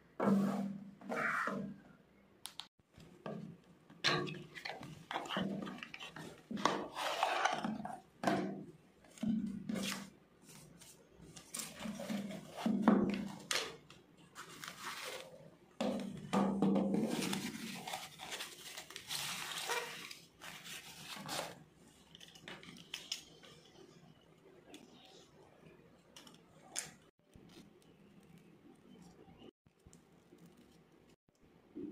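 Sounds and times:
wrapping crinkling: 17.2s - 23.4s.

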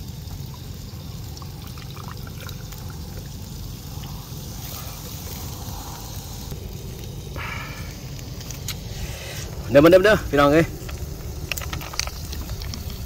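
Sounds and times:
soft drink pouring and fizzing: 0.0s - 13.0s
steady low rumble: 0.0s - 13.0s.

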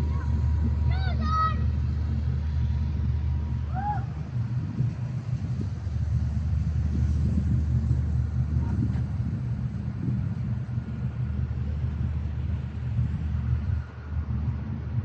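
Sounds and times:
ship engines droning: 0.0s - 15.0s.

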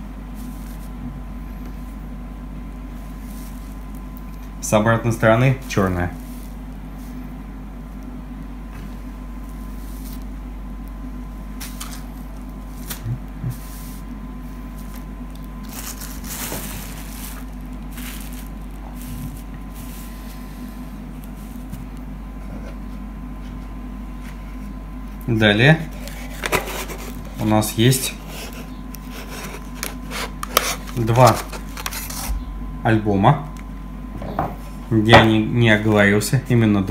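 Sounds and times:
steady low hum: 0.0s - 36.9s
cloth rustling: 14.7s - 21.7s.

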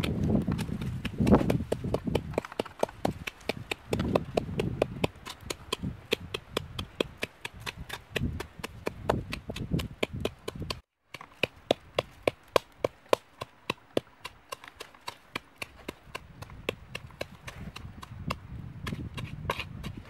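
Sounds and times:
pestle pounding in bowl: 0.0s - 10.8s.

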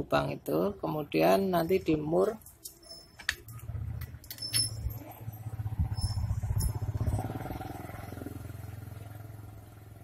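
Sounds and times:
vehicle engine running: 3.4s - 10.0s.

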